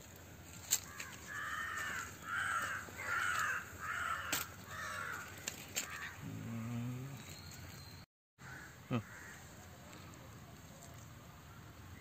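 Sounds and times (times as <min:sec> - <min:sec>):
crow cawing: 0:00.8 - 0:06.2, 0:08.4 - 0:09.5.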